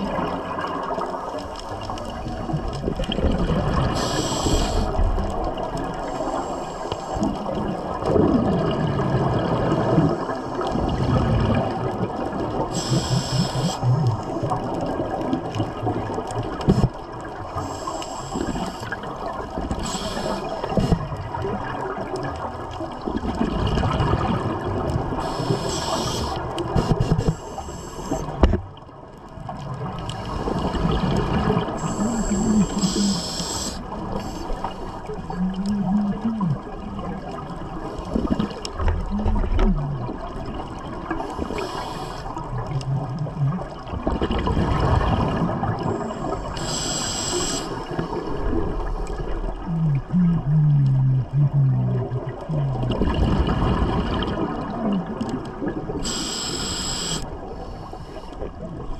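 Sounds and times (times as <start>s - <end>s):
exhaled air bubbling underwater: 0.0s - 58.9s
regulator hiss on inhalation: 3.9s - 5.0s, 6.0s - 7.2s, 12.7s - 13.9s, 17.6s - 19.0s, 19.8s - 21.0s, 25.2s - 28.4s, 31.8s - 34.9s, 41.3s - 42.3s, 46.0s - 48.0s, 56.0s - 58.4s.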